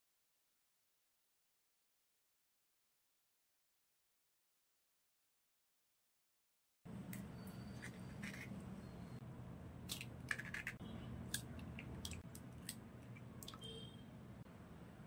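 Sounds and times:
eggshells cracking: 0:09.9 - 0:12.8.

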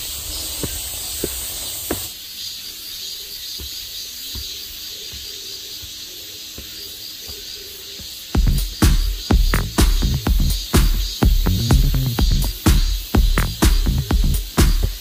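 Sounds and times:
footsteps on rocky leafy trail: 0:00.0 - 0:09.6
insects hissing: 0:00.0 - 0:15.0.

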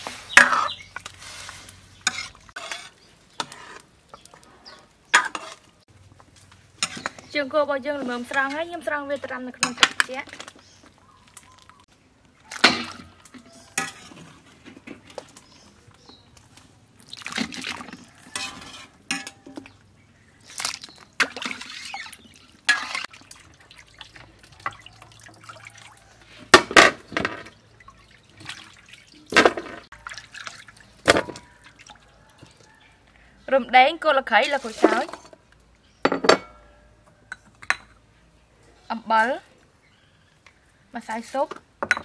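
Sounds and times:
water splashing in a metal bowl: 0:17.0 - 0:19.8, 0:20.4 - 0:33.0.

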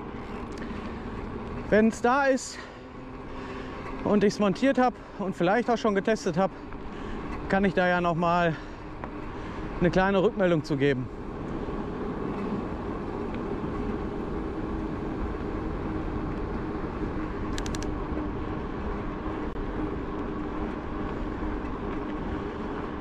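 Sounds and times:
steady low hum: 0:00.0 - 0:23.0
tyres rolling on asphalt: 0:00.0 - 0:23.0
quick clicks: 0:17.5 - 0:17.9.

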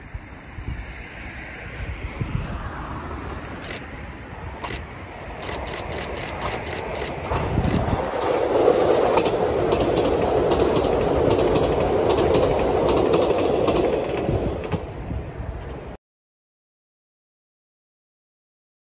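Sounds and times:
train wheels rumbling on rail: 0:00.2 - 0:03.9, 0:04.5 - 0:16.0
clacks over rail joints: 0:05.5 - 0:15.0.

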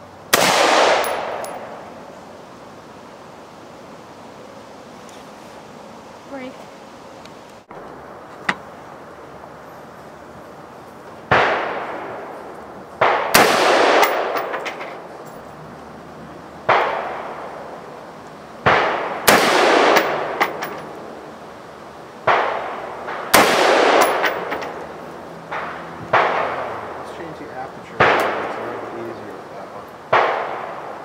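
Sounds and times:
rifle shots echoing: 0:00.3 - 0:01.9, 0:11.3 - 0:12.3, 0:13.0 - 0:15.0, 0:16.6 - 0:17.7, 0:18.6 - 0:20.9, 0:22.2 - 0:24.9, 0:25.5 - 0:27.0, 0:28.0 - 0:28.9, 0:30.1 - 0:31.0.

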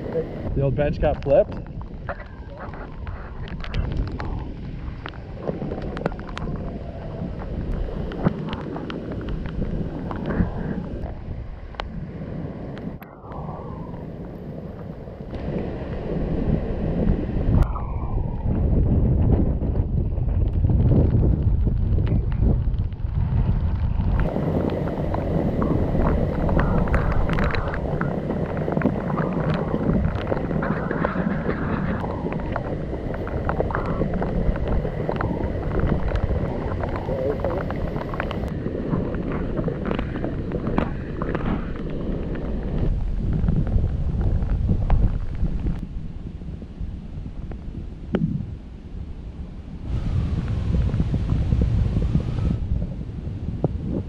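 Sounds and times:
wind buffeting microphone: 0:00.0 - 0:54.0
sharp clicks and crackles: 0:00.9 - 0:12.0, 0:19.7 - 0:45.8.

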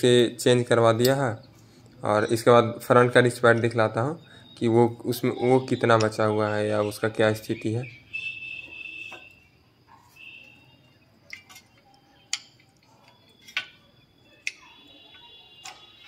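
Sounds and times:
metallic clicks and taps: 0:11.2 - 0:13.8, 0:14.4 - 0:15.9.

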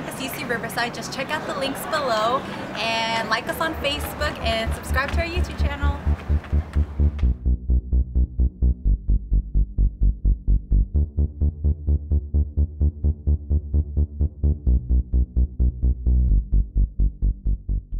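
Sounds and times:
electronic dance music: 0:03.8 - 0:08.9.

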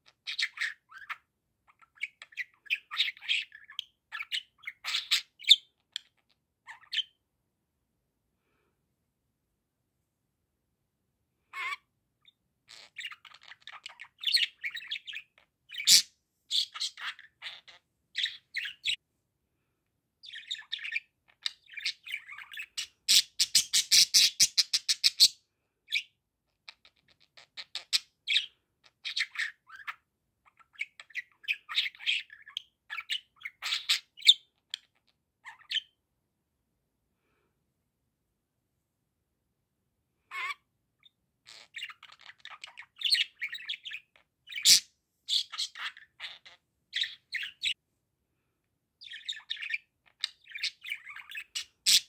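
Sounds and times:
budgerigar chattering: 0:01.9 - 0:07.1, 0:12.7 - 0:19.0, 0:20.3 - 0:25.3, 0:49.0 - 0:52.0.

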